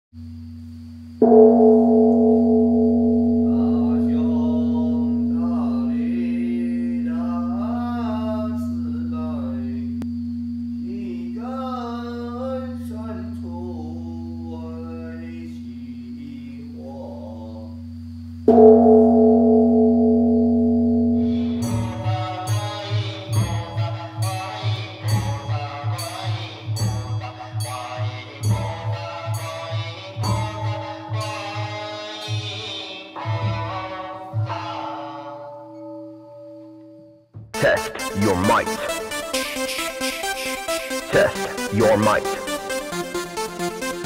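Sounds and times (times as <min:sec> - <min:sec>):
low steady hum: 0:00.2 - 0:22.4
temple bell ringing: 0:01.2 - 0:16.4, 0:18.5 - 0:22.9
voices chanting: 0:37.6 - 0:39.6, 0:40.5 - 0:43.0.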